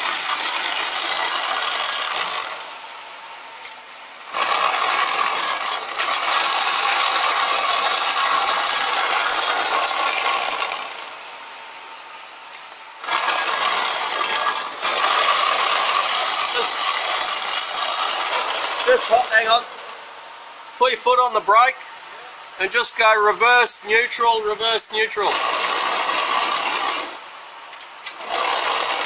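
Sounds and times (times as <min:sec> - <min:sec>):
transmission grumbling: 0:13.0 - 0:19.9.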